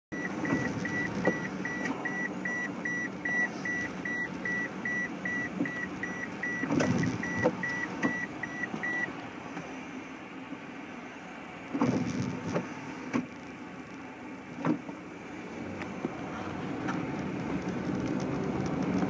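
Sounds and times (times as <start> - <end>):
car warning chime beeping: 0.1 - 9.2
low rumble inside car: 0.1 - 19.0.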